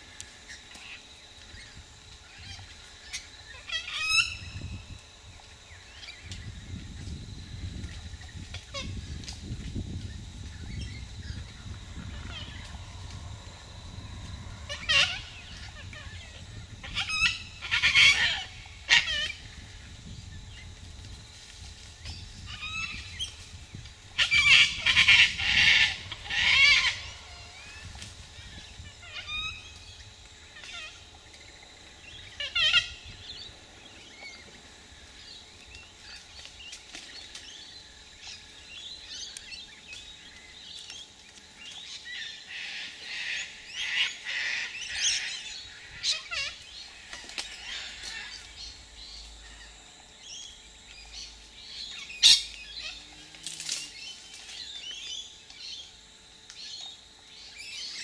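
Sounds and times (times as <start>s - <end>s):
cockatoos screeching: 10.7s - 19.6s, 24.2s - 29.6s.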